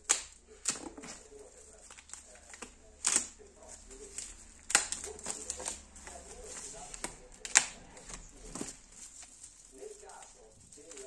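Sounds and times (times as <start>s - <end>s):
plastic wrap crinkling: 0.0s - 11.0s.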